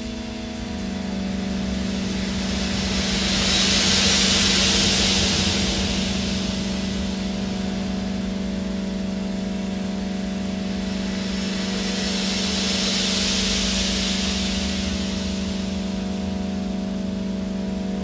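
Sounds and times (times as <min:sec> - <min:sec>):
ambient drone music: 0:00.0 - 0:18.0
hiss: 0:00.0 - 0:18.0.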